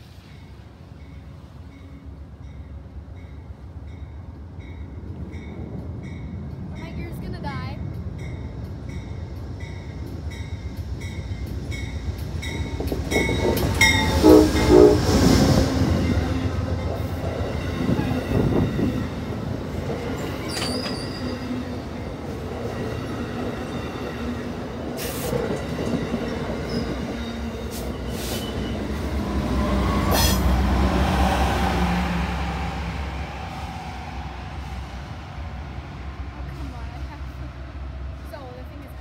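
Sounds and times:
train wheels clicking on rails: 5.5s - 14.6s
diesel locomotive rumble: 23.4s - 39.0s.

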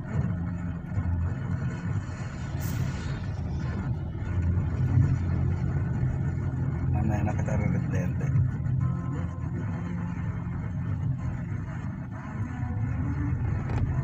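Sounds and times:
car engine and road noise: 0.0s - 14.0s
passing vehicle hiss: 2.3s - 3.7s.

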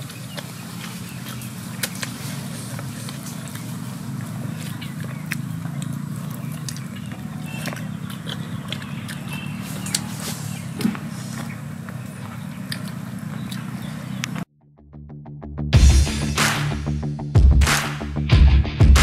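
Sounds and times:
chewing with lip smacks: 0.0s - 14.4s.

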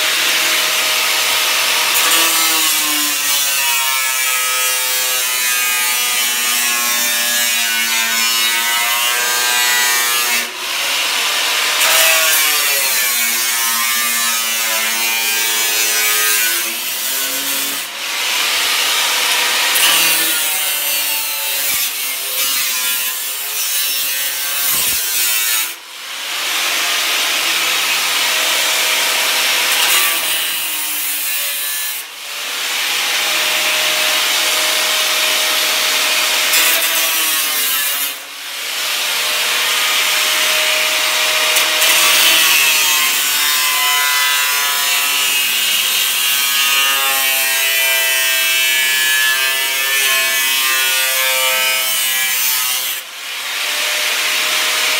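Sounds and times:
angle grinder cutting steel: 0.0s - 54.9s.

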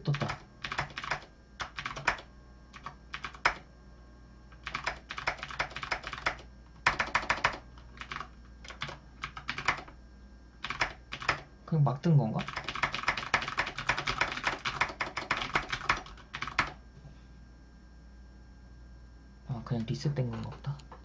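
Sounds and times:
keyboard typing: 0.0s - 3.6s, 4.5s - 10.0s, 10.6s - 11.5s, 12.4s - 16.8s.

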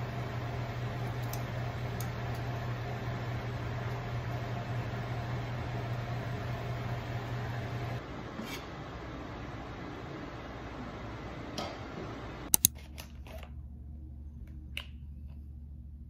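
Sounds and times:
pot boiling: 0.0s - 12.5s
kitchen fan hum: 0.0s - 16.0s.

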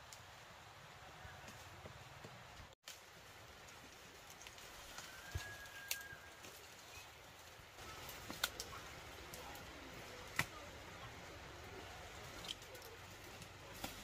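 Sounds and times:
plant shoots snapping: 8.1s - 9.4s, 10.2s - 10.6s.

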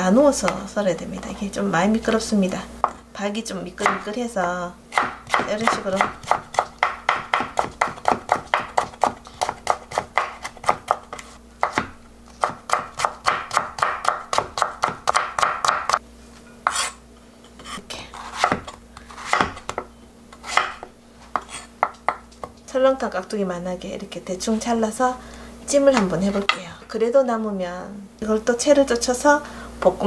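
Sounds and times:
knife chopping on wooden board: 3.8s - 4.1s, 4.9s - 16.0s, 16.6s - 17.0s, 17.6s - 22.6s.

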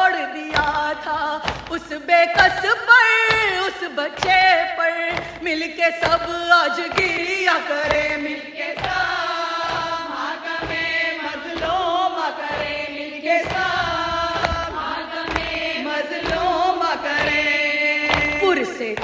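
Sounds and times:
voices chanting a lament: 0.0s - 19.0s
recurring beat: 0.7s - 19.0s.

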